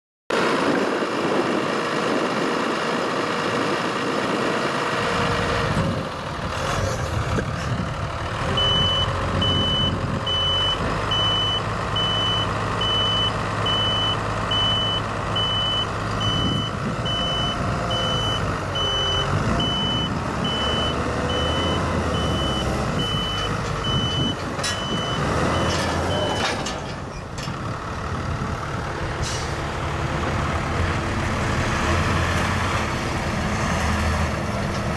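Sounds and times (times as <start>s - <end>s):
tractor engine running: 0.3s - 34.9s
reversing alarm beeping: 8.5s - 26.5s.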